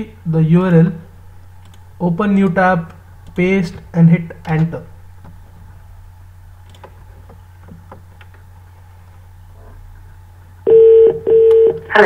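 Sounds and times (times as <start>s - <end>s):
low steady hum: 0.0s - 12.0s
loud steady beep tone: 10.7s - 11.8s.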